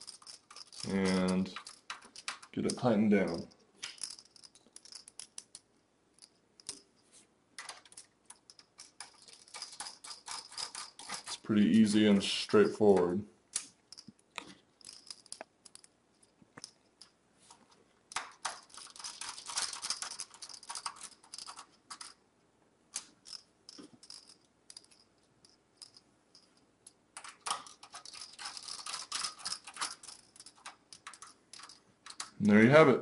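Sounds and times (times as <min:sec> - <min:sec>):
screws scratchy clicking: 0:00.0 - 0:05.6, 0:07.6 - 0:11.5, 0:18.1 - 0:22.2, 0:27.2 - 0:32.4.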